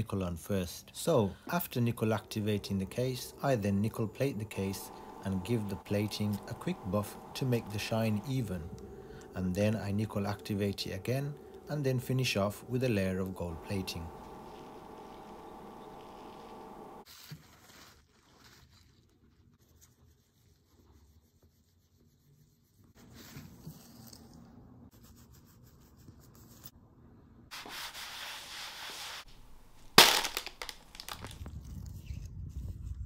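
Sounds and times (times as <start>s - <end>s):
plastic bin bag crackling: 29.3s - 31.5s.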